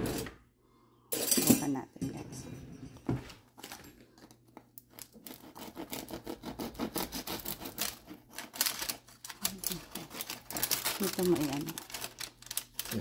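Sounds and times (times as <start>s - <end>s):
knife sawing through crackling skin: 5.2s - 8.9s.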